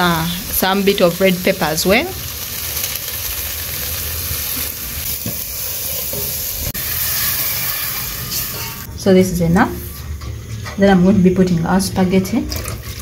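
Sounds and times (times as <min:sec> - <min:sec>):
sauce sizzling in a pot: 0:00.0 - 0:08.9.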